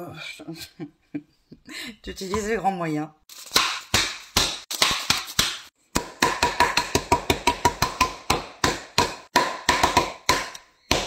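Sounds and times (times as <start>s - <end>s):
rolling pin pounding chocolate: 3.6s - 11.0s.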